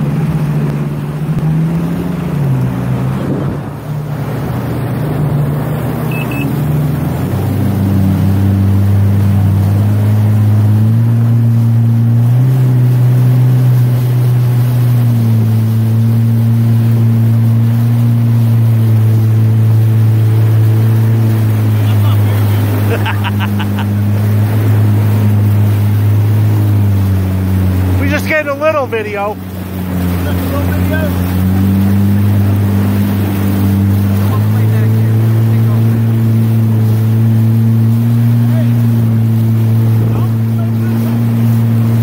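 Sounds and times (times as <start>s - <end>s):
motorboat engine running: 0.0s - 42.0s
water rushing past: 0.0s - 42.0s.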